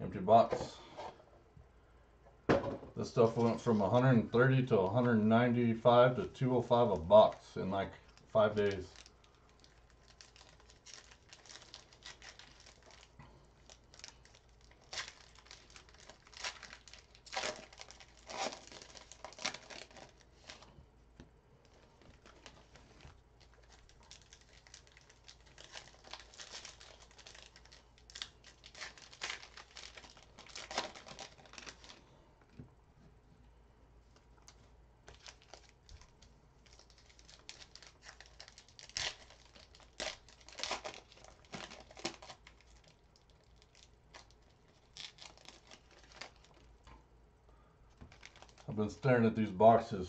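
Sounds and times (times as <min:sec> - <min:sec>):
wrappers crinkling and tearing: 0:08.0 - 0:20.8, 0:21.6 - 0:32.2, 0:34.4 - 0:46.9, 0:47.9 - 0:48.8.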